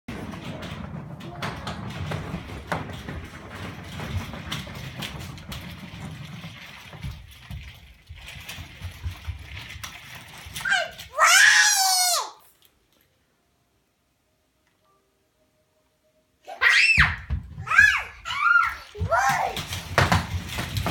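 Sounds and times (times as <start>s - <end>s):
clicks and knocks: 0.1s - 10.4s
plastic wheels rolling on wood floor: 0.1s - 12.7s, 16.8s - 20.9s.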